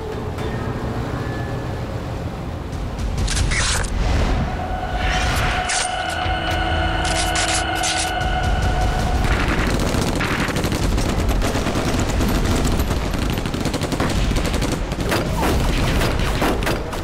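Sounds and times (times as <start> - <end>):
low rumble: 0.1 - 13.2
machine-gun fire: 9.2 - 17.0.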